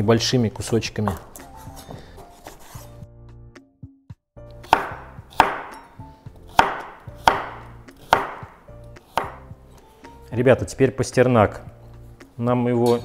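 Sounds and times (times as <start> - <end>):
knife chopping on wooden board: 4.6 - 9.6.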